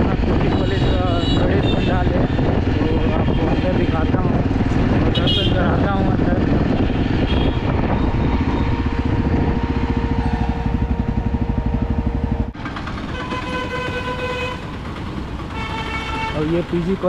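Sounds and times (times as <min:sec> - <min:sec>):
wind noise on microphone: 0:00.0 - 0:14.0
motorcycle engine running: 0:00.0 - 0:17.0
street traffic: 0:00.0 - 0:17.0
steady tone: 0:05.8 - 0:14.1.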